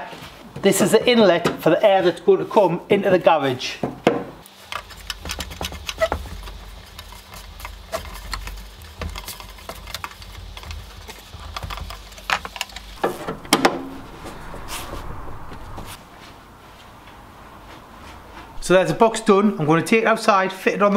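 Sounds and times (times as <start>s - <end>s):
screwdriver clicking and scraping: 4.4s - 13.0s.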